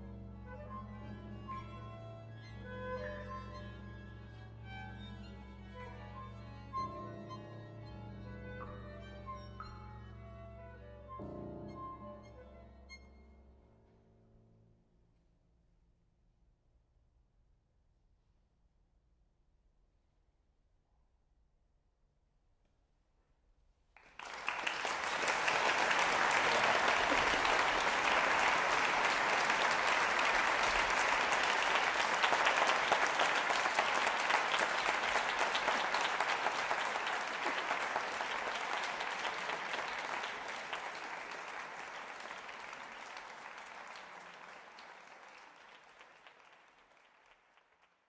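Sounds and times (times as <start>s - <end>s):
audience applauding: 24.0s - 48.0s.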